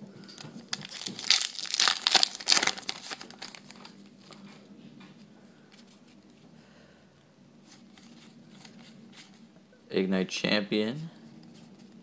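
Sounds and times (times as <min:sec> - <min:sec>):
foil wrapper crinkling: 0:00.6 - 0:04.0
faint rustling of cards: 0:07.6 - 0:09.5.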